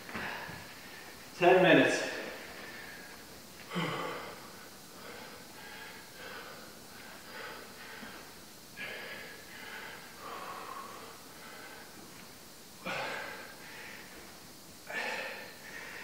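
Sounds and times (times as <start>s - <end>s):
man breathing hard: 0.0s - 1.2s, 2.4s - 16.0s.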